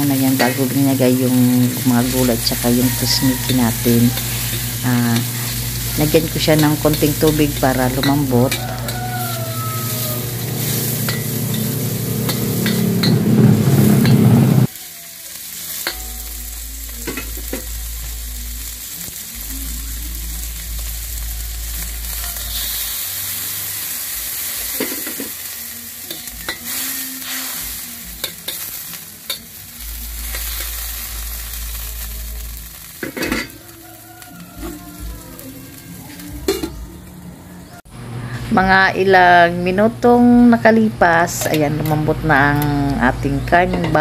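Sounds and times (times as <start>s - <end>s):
meat sizzling in oil in a wok: 0.0s - 36.3s
metal ladle scraping a wok: 0.1s - 17.8s, 21.6s - 31.6s
low rumble: 9.8s - 14.7s.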